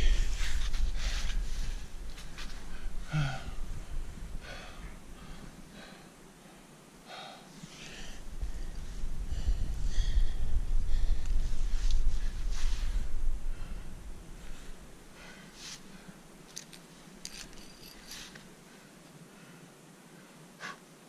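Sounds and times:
low microphone rumble: 0.0s - 5.9s, 7.7s - 16.4s
person breathing hard: 2.6s - 16.3s.

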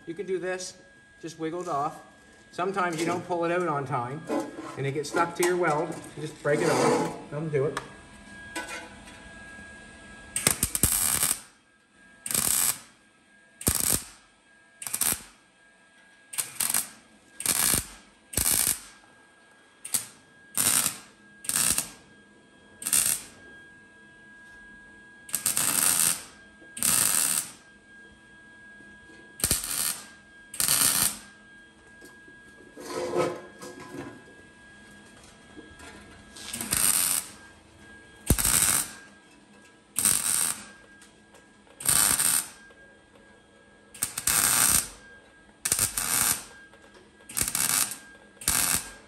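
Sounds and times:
welding arc crackling bursts: 10.4s - 11.5s, 12.3s - 12.9s, 13.6s - 14.2s, 14.8s - 15.4s, 16.4s - 19.0s, 19.9s - 22.0s, 22.8s - 23.4s, 25.3s - 27.6s, 29.4s - 31.3s, 36.5s - 37.4s, 38.3s - 39.0s, 40.0s - 40.7s, 41.8s - 42.6s, 44.0s - 45.0s, 45.6s - 46.5s, 47.3s - 49.0s.

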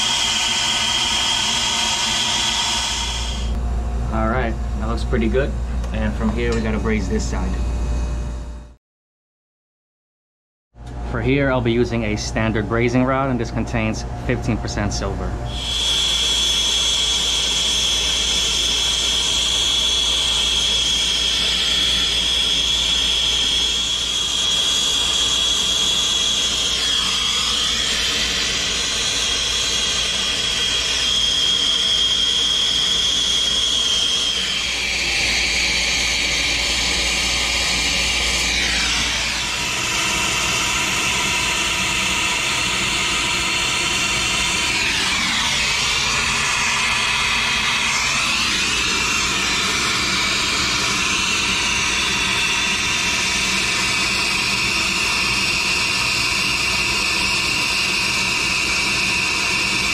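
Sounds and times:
high whistle in flame: 0.0s - 3.6s, 15.5s - 59.9s.

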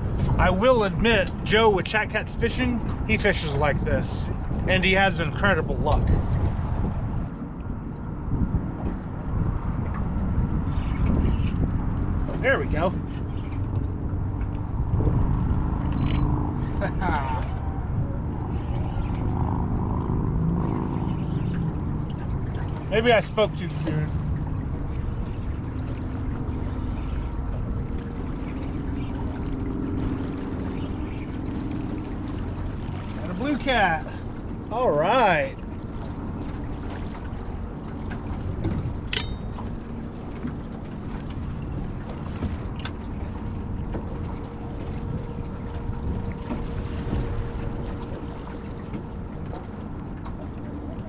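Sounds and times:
wind on microphone: 0.0s - 34.8s, 35.4s - 51.0s
river current rushing against boat: 12.2s - 51.0s.

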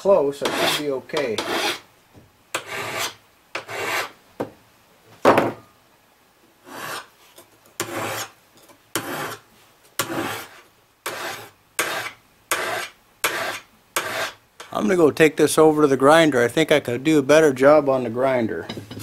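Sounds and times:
file rasping on steel blade: 0.4s - 1.8s, 2.6s - 4.2s, 6.6s - 7.1s, 7.8s - 8.3s, 9.0s - 9.4s, 10.0s - 14.4s.

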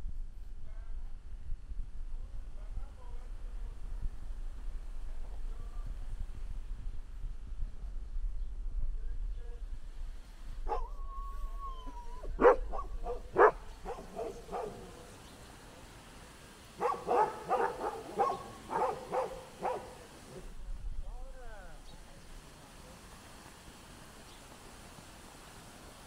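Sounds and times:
dog barking: 10.7s - 10.9s, 12.4s - 15.1s, 16.8s - 20.4s
dog whining: 10.7s - 14.7s.

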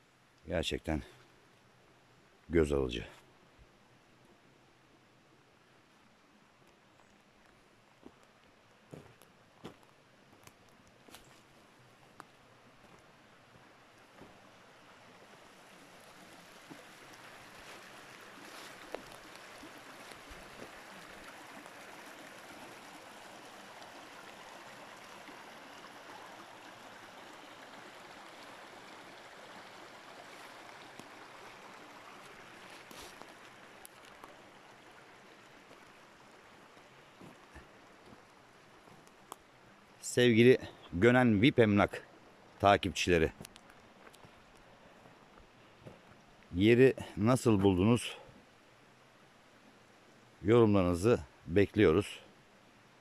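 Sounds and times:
creek water babbling over stones: 0.0s - 53.0s.

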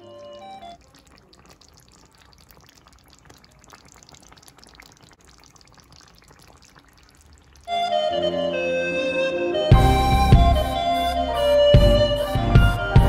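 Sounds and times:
curry bubbling in a pan: 0.0s - 8.2s.

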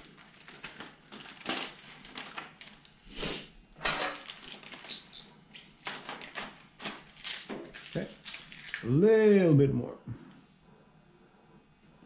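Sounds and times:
film crinkling: 0.0s - 3.0s, 3.8s - 9.0s.

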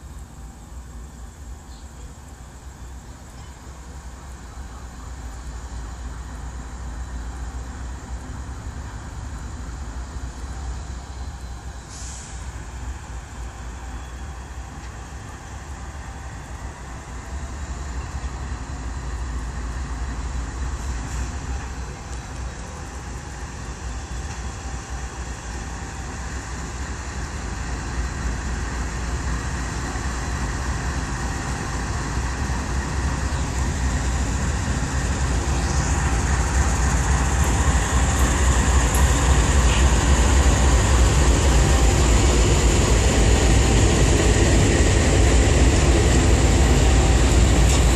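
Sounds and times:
diesel locomotives rumbling: 0.0s - 47.9s
train wheel noise: 0.0s - 47.9s.

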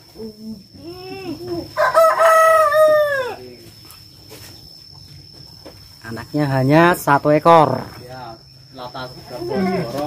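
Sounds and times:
rooster crowing: 1.6s - 3.5s.

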